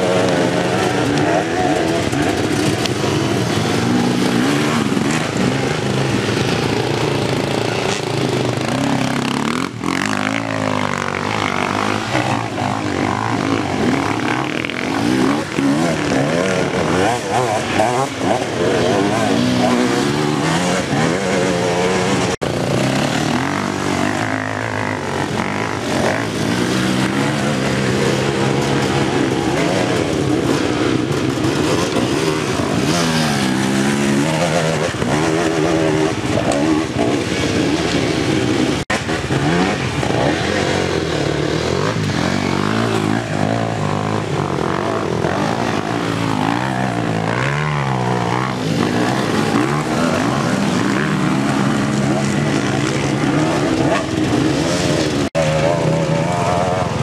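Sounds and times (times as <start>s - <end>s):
dirt bike engines revving: 0.0s - 57.0s.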